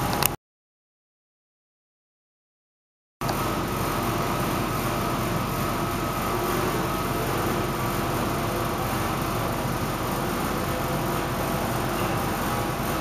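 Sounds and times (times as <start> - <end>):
faint hum: 3.2 - 13.0.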